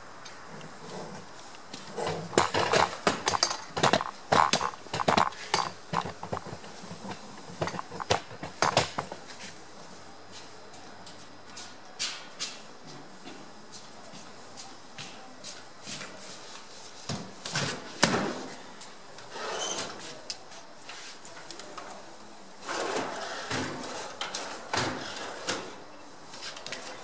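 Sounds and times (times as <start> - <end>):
handling clicks and knocks: 2.2 - 9.2.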